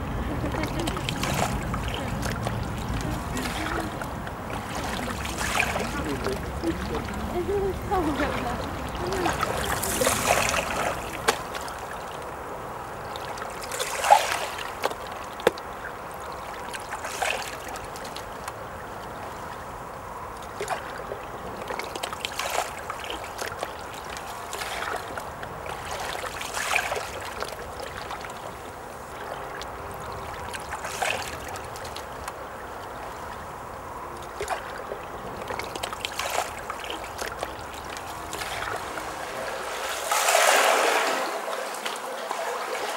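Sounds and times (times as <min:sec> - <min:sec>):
small water splashes: 0:00.0 - 0:42.9
stream water trickling: 0:00.0 - 0:42.9.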